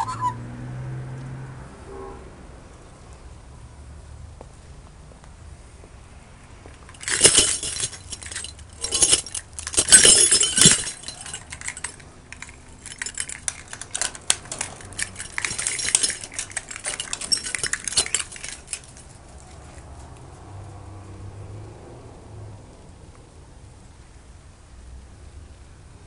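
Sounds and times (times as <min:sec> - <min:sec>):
gate lock hardware rattling: 0:06.8 - 0:19.2
keys jangling: 0:06.8 - 0:19.9.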